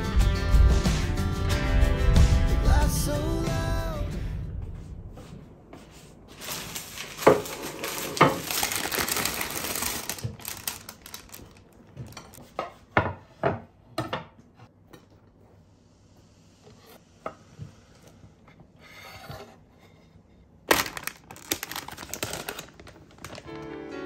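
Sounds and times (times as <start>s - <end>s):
rustling: 6.1s - 12.4s.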